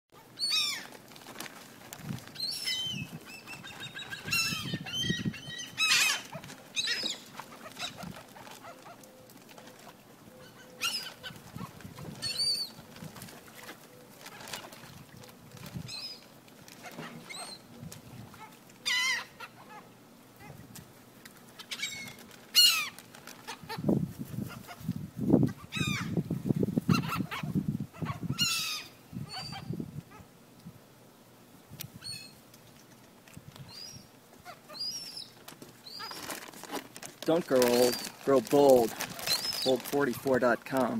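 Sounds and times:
seagulls calling: 0.2 - 1.0, 2.4 - 13.0, 16.8 - 20.6, 21.6 - 23.9, 25.6 - 26.2, 26.9 - 29.7, 33.7 - 36.4, 37.5 - 39.9.

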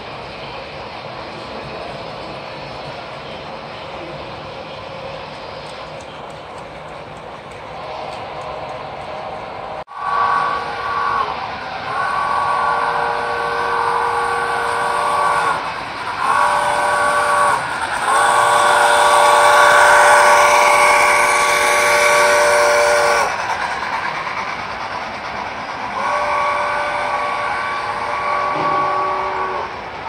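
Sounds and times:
model train running noise: 0.0 - 30.0
model train whistle blasts: 9.9 - 15.6, 16.2 - 23.4, 26.0 - 29.8.

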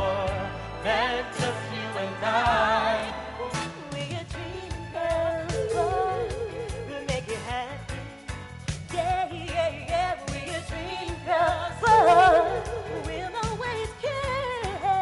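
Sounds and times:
female vocal group singing: 4.4 - 7.2, 10.4 - 15.0
band playing steady beat: 5.5 - 7.8.

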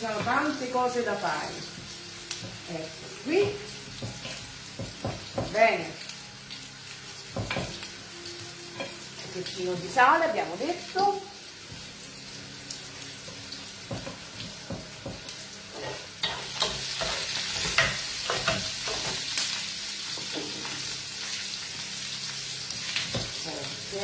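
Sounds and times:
vegetables sizzling in a frying pan: 0.0 - 24.0.

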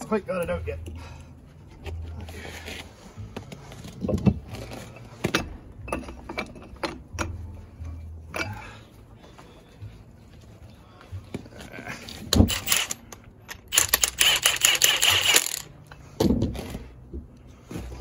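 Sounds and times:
metal clanks and clicks: 12.3 - 15.7.

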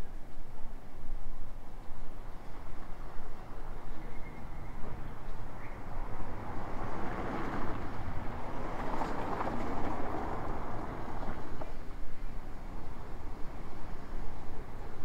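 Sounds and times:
outdoor street ambience: 0.0 - 15.0
vehicle passing: 3.6 - 11.8.

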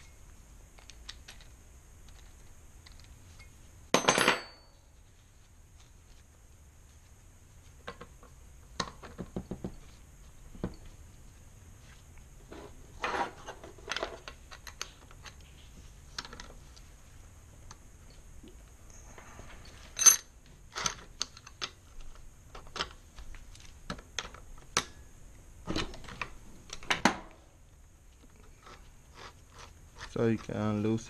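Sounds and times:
metal hand tools clinking: 20.0 - 20.2.

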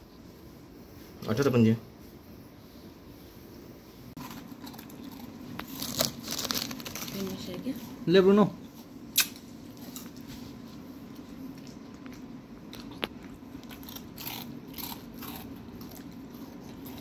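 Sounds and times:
puppy chewing a biscuit: 9.6 - 17.0.

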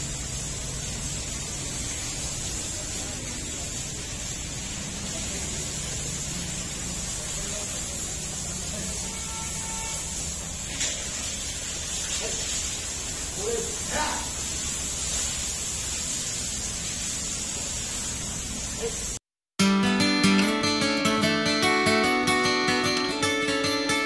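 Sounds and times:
steady hiss: 0.0 - 19.2.

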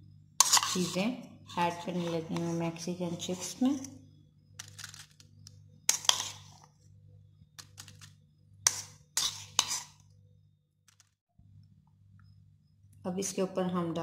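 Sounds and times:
low steady hum: 0.0 - 14.0
metal spoon scraping bowls: 0.4 - 3.9, 5.9 - 6.8, 7.6 - 10.1.

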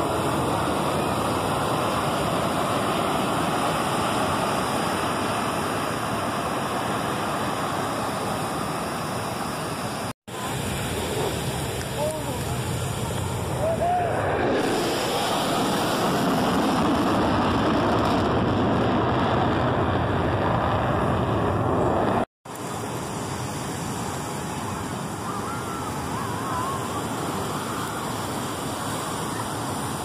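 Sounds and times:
surf: 0.0 - 19.3
jet aircraft roar: 0.0 - 30.0.

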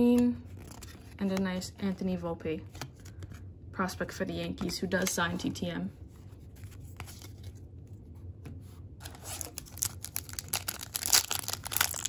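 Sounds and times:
card pack wrapper crinkling: 0.5 - 1.2, 9.0 - 12.0.

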